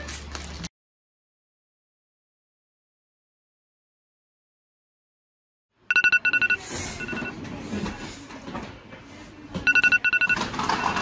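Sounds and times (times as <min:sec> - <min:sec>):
alarm clock beeping: 0:05.9 - 0:07.4, 0:09.7 - 0:11.0.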